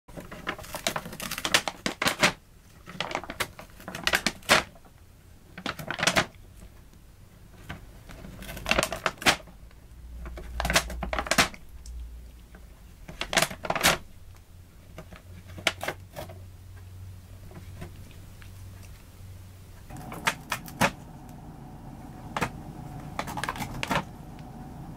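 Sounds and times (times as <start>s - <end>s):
paper bag crinkling: 0.1s - 4.9s, 5.5s - 6.7s, 7.6s - 9.6s, 10.2s - 11.7s, 13.0s - 14.2s, 19.9s - 24.9s.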